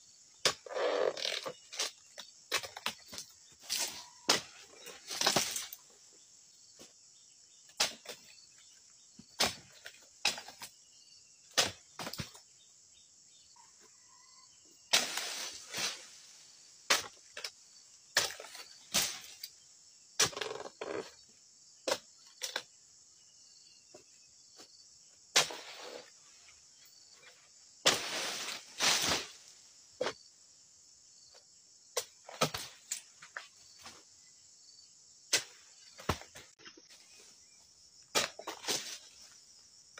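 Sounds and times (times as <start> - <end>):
insects buzzing: 0.0 - 39.9
chisel chopping palm fronds: 0.4 - 5.8, 7.7 - 8.3, 9.4 - 10.8, 11.5 - 12.4, 14.9 - 16.1, 16.9 - 17.5, 18.1 - 19.5, 25.3 - 26.0, 27.8 - 29.4, 32.0 - 33.1, 38.1 - 39.0.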